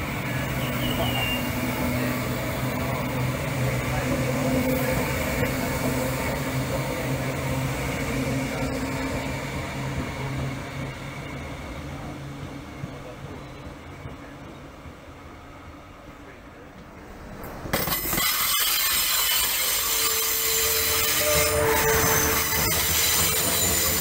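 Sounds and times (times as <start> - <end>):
electric train hum: 0.0 - 24.0
wheel-on-rail noise: 16.2 - 24.0.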